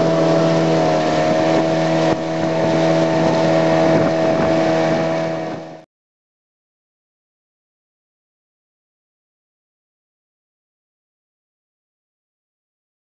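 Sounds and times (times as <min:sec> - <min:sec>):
water rushing and splashing: 0:00.0 - 0:05.8
outboard motor drone: 0:00.0 - 0:05.9.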